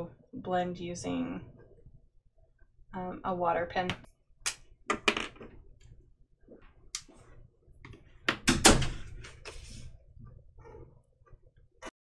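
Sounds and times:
pens knocking on a tabletop: 0:04.9 - 0:05.6.

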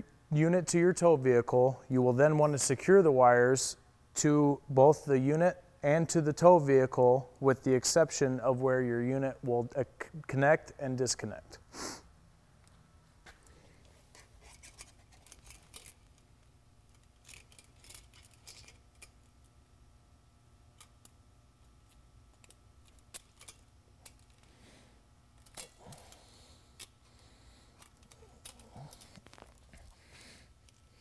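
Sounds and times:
zip ties clicking and rasping: 0:16.9 - 0:19.3, 0:21.8 - 0:24.5, 0:27.7 - 0:29.9.

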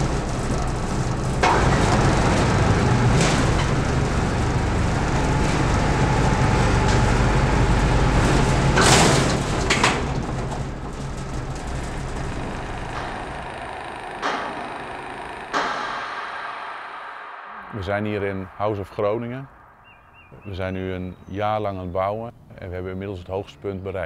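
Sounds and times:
sharp knocks and clanks: 0:00.0 - 0:17.5
heavy machine engine running: 0:00.0 - 0:17.8.

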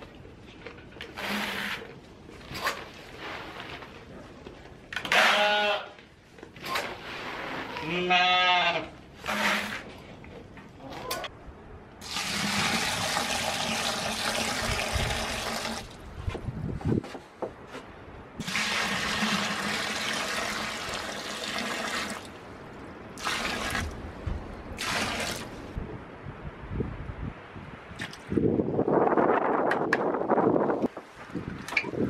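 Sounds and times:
water pouring into plastic buckets: 0:12.0 - 0:16.0, 0:18.4 - 0:22.4, 0:23.2 - 0:24.0, 0:24.8 - 0:25.6.

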